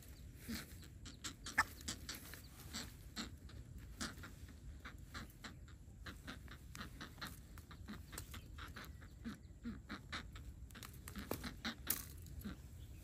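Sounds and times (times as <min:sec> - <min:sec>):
short low bird calls: 0:00.0 - 0:13.0.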